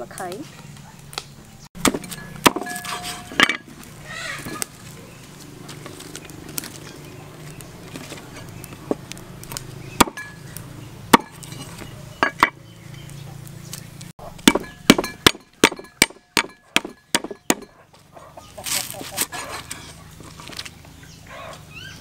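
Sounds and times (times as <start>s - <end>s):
cleaver chopping on wooden board: 1.8s - 3.6s, 10.0s - 10.3s, 11.1s - 11.4s, 14.4s - 17.7s.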